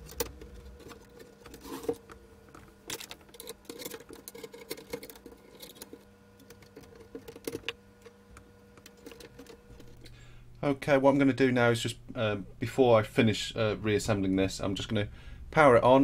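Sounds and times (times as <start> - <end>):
screwdriver and hands tapping metal: 0.0 - 10.1
faint hum: 0.0 - 16.0.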